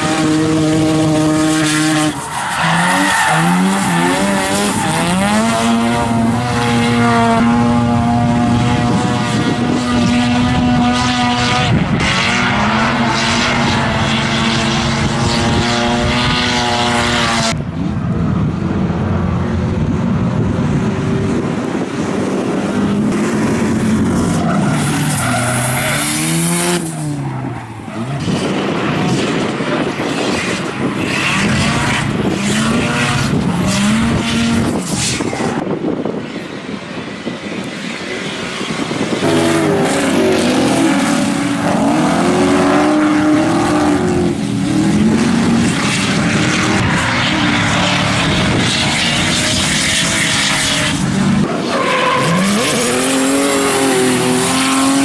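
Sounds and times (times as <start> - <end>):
tyres squealing and skidding: 0.0 - 7.0, 23.8 - 35.6, 46.6 - 55.0
car engines revving: 0.0 - 55.0.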